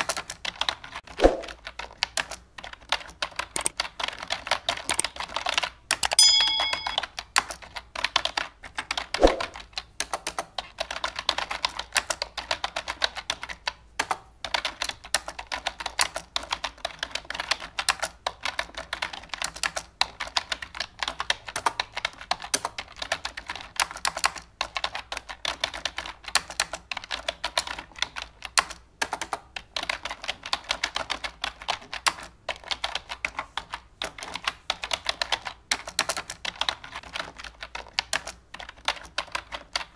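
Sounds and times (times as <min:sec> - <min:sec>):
rapid irregular clicking: 0:00.0 - 0:39.9
short bell-like chime: 0:06.2 - 0:07.1.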